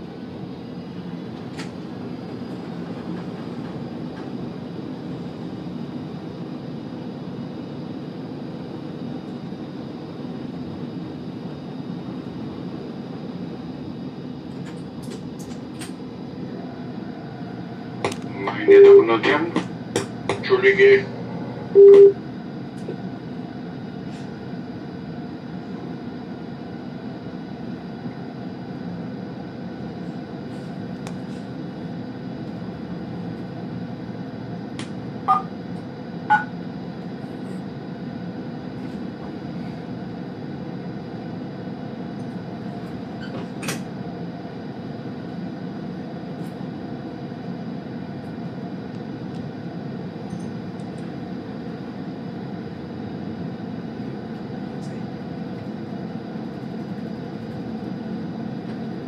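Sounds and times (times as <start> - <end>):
train running noise: 0.9 - 6.2, 14.5 - 23.4
short beeps: 21.8 - 22.2, 35.3 - 35.5, 36.3 - 36.5.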